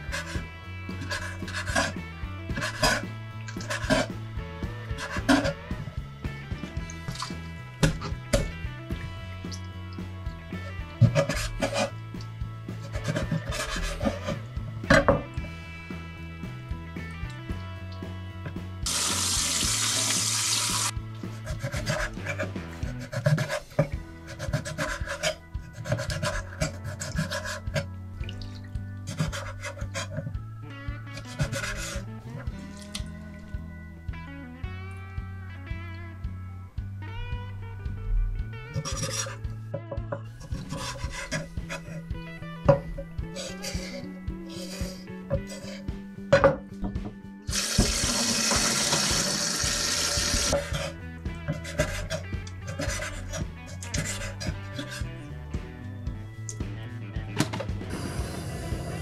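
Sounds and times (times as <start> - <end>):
water running from a tap: 18.9 - 21.0, 47.5 - 50.6
knife slicing on cutting board: 40.5 - 42.0, 51.6 - 55.0.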